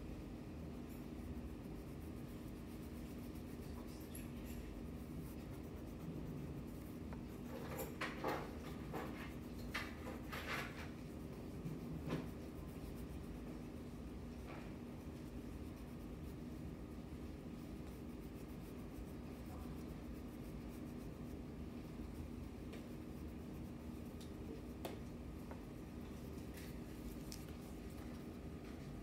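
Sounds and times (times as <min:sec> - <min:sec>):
faint steady hum: 0:00.0 - 0:29.0
crayon rubbing on paper: 0:01.0 - 0:24.9.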